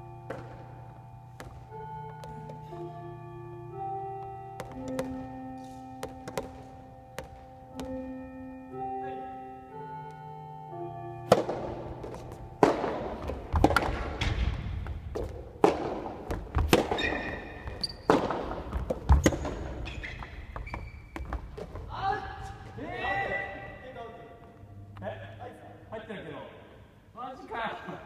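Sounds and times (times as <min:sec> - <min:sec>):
sharp knocks and thumps: 0:11.3 - 0:21.9.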